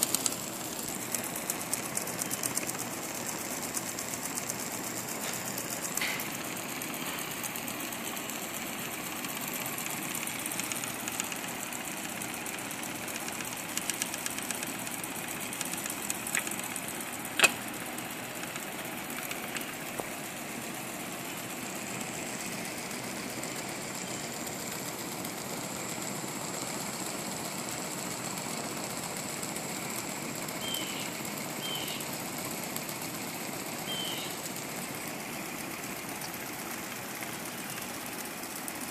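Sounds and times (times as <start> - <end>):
toy steam engine ticking: 0.0 - 38.9
sharp click: 17.3 - 17.7.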